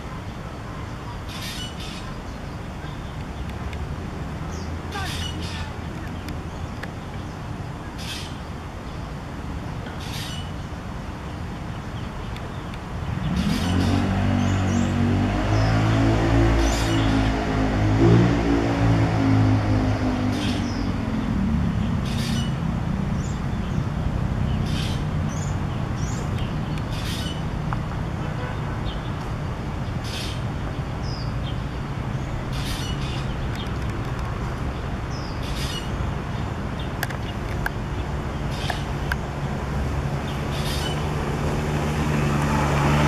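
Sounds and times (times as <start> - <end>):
low traffic rumble: 0.0 - 43.0
bird calling harshly: 1.2 - 2.3, 4.9 - 5.8, 8.0 - 8.4, 10.0 - 10.6, 22.0 - 22.6, 24.6 - 26.3, 26.9 - 27.5, 30.0 - 30.5, 32.4 - 33.5, 35.1 - 36.1, 40.4 - 41.1
passing vehicle engine: 13.0 - 28.2, 29.0 - 43.0.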